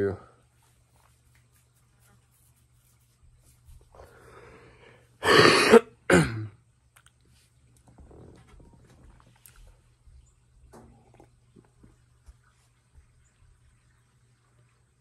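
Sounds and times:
young man coughing: 5.2s - 6.6s.

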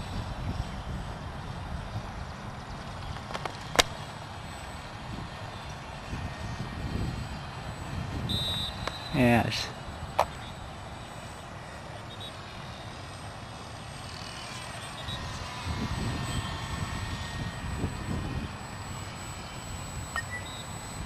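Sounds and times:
wind buffeting microphone: 0.0s - 3.8s, 5.0s - 8.8s, 15.2s - 18.8s
rc airplane motor whining: 0.0s - 21.0s.

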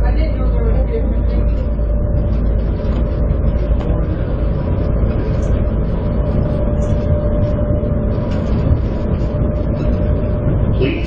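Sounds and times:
constant tone: 0.0s - 11.0s
shuttle train rumble: 0.0s - 11.0s.

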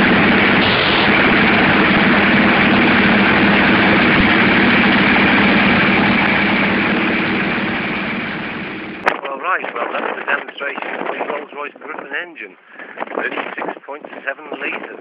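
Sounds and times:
piston aircraft engine droning: 0.0s - 9.2s.

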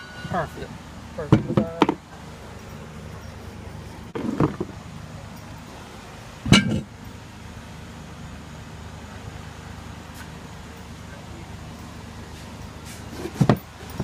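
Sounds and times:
metallic clank with ring: 0.0s - 1.8s, 6.5s - 6.9s
steady low hum: 0.0s - 14.0s.

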